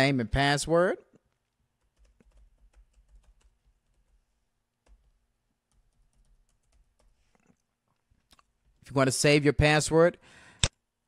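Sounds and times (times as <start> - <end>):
faint keyboard typing: 1.2 - 8.8.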